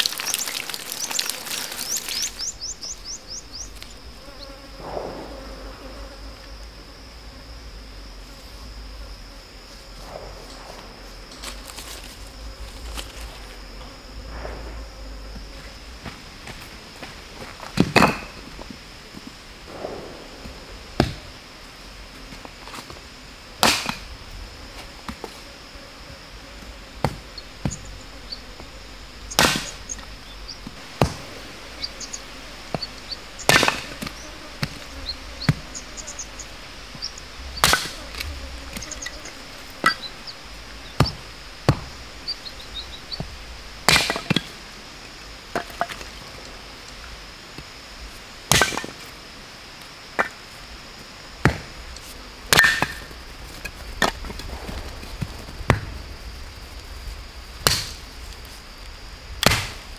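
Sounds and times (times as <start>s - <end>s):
high insect drone: 0.0s - 59.9s
hatchet chopping bamboo: 37.6s - 38.0s, 52.5s - 53.1s, 59.4s - 59.8s.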